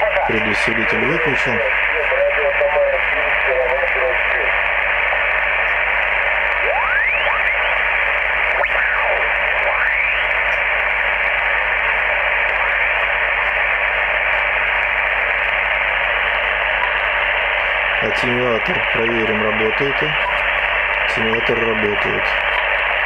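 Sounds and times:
radio static hiss: 0:00.0 - 0:23.0
radio whistles sliding in pitch: 0:06.8 - 0:08.0, 0:08.6 - 0:10.4.

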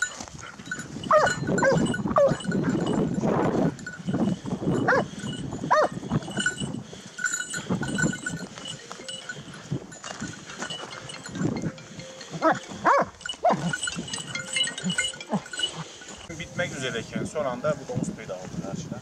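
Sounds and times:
dog yelping: 0:01.1 - 0:02.8, 0:05.7 - 0:05.9, 0:12.4 - 0:13.8.

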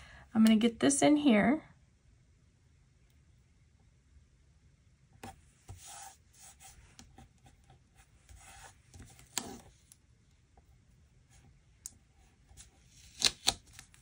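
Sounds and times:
paper pages rustling: 0:12.6 - 0:14.0.

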